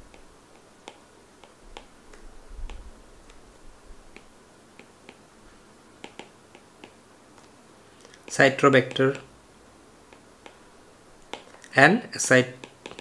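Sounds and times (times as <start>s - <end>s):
stylus tapping a tablet: 0.0s - 3.4s, 4.1s - 5.3s, 6.0s - 7.5s, 10.1s - 10.6s, 11.2s - 11.7s, 12.6s - 13.0s.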